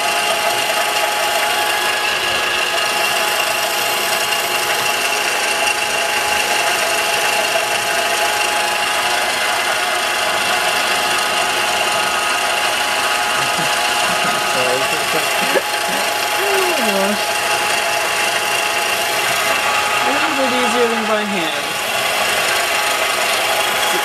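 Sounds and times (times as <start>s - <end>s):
milling machine spindle whining: 0.0s - 24.0s.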